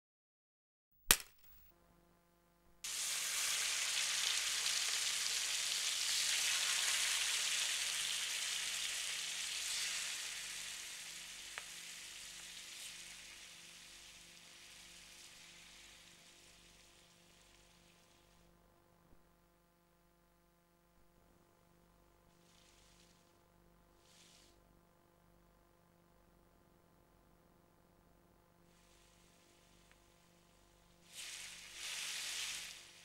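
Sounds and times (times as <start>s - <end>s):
sharp click: 1.0s - 1.7s
eggs sizzling in hot oil: 2.8s - 18.5s, 30.9s - 33.0s.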